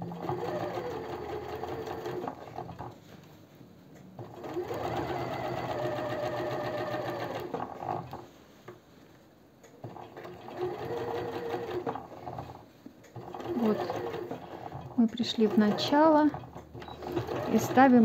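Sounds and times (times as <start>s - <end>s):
sewing machine motor whine: 0.0s - 2.9s, 4.2s - 8.2s, 13.2s - 18.0s.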